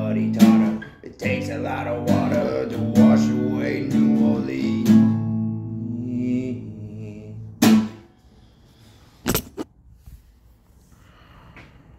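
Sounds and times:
acoustic guitar chord ringing: 0.0 - 6.2, 7.6 - 8.2.

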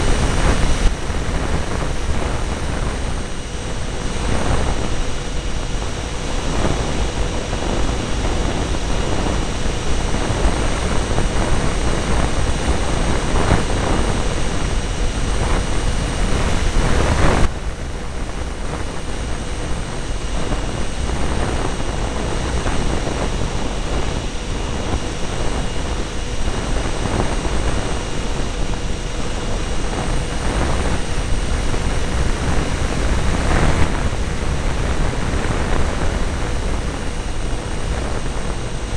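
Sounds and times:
electric ducted fans whining: 0.0 - 38.9.

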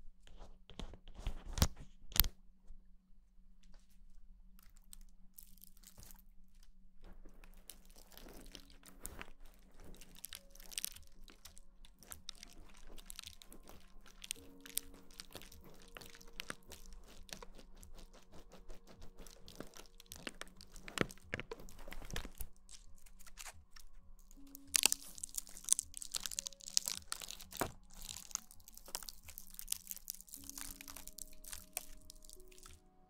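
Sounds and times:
faint soft background music: 0.0 - 33.0
close crackling and crunching: 0.4 - 2.4, 3.6 - 33.0.

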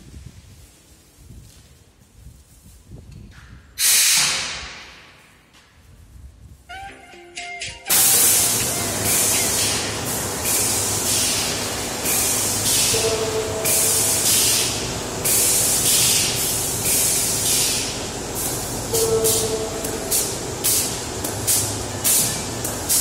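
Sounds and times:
compressed air hiss bursts: 3.8 - 5.0, 7.9 - 23.0
two-note tone: 6.7 - 8.9
steady rush of air: 7.9 - 13.0.

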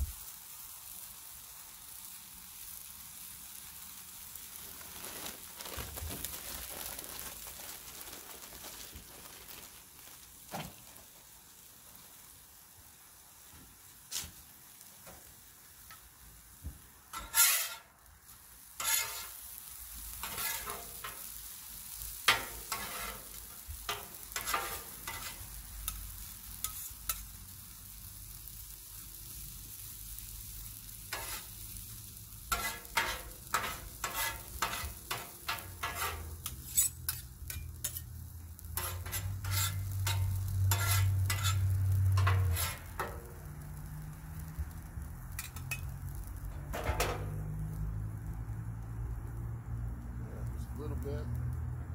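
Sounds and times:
hash browns sizzling in oil: 0.0 - 51.9
metal spatulas scraping on griddle: 17.1 - 18.0, 18.7 - 27.4, 31.1 - 31.6, 32.5 - 43.4, 45.3 - 47.4.

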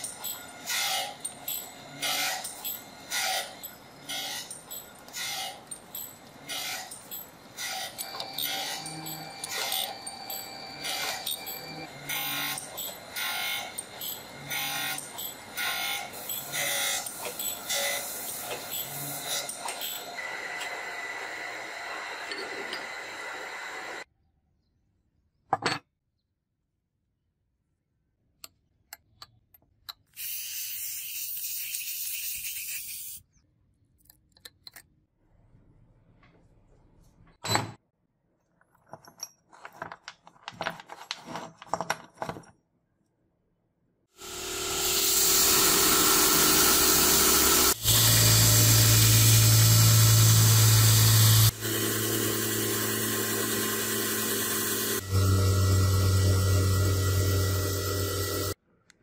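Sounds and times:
belt grinder grinding steel: 0.0 - 24.0, 44.2 - 58.6.

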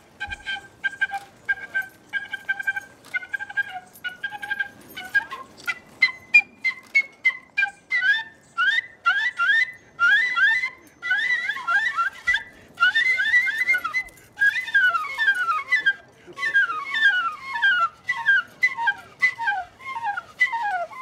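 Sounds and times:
small wind instrument staccato notes: 0.0 - 5.8.

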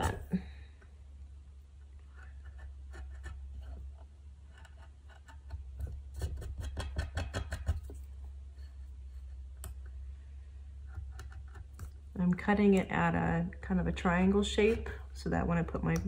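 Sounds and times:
knife cutting veneer: 2.0 - 8.0
steady low hum: 7.4 - 16.0.

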